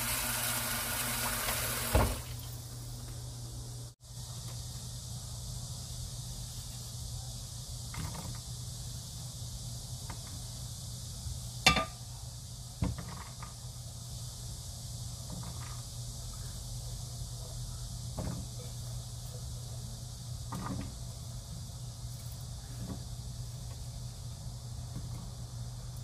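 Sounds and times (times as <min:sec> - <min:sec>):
steady low hum and hiss: 0:00.0 - 0:26.0
vegetables knocking on metal pan: 0:11.7 - 0:12.0.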